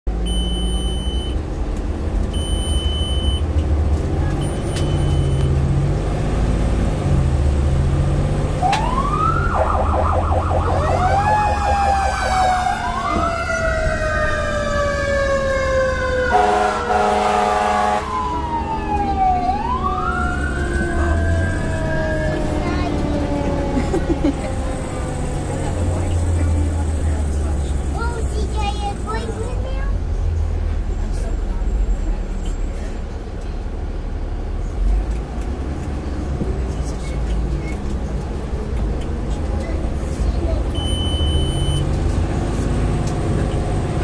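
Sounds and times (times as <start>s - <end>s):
fire truck engine running: 0.1s - 44.0s
short high beeps: 0.3s - 1.4s, 2.4s - 3.4s, 4.4s - 5.6s, 40.8s - 41.9s
siren wailing: 8.6s - 23.9s
horn blast: 16.3s - 18.2s.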